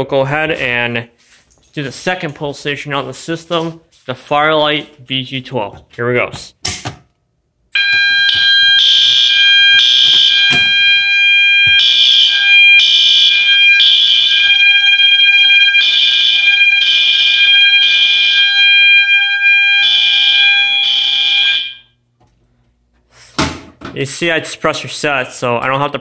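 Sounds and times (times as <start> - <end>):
fire alarm horn blasts: 7.7 - 22.0
steady alarm tone: 7.7 - 22.0.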